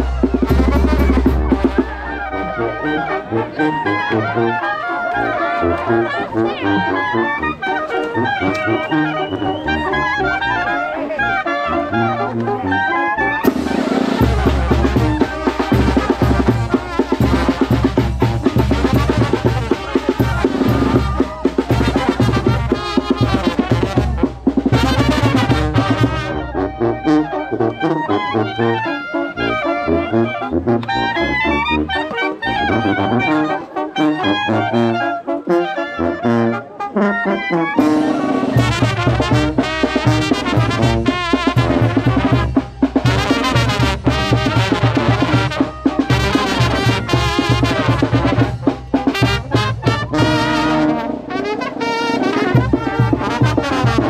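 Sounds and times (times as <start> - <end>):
bass drum: 0.0 - 2.0, 13.4 - 26.4, 38.4 - 50.8, 52.2 - 54.0
brass band playing: 0.0 - 54.0.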